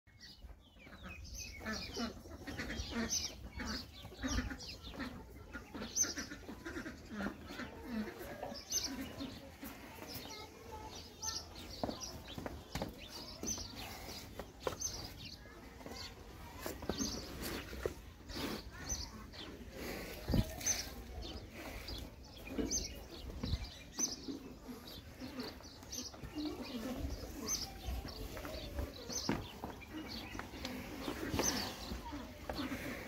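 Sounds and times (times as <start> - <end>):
small birds chirping: 0.1 - 33.0
hens clucking: 0.2 - 33.0.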